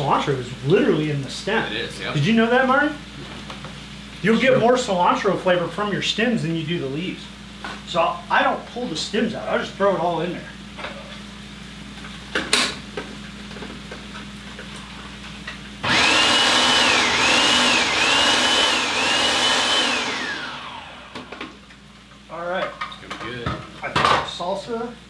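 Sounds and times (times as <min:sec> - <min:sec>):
food processor motor whining: 0:15.8 - 0:21.6.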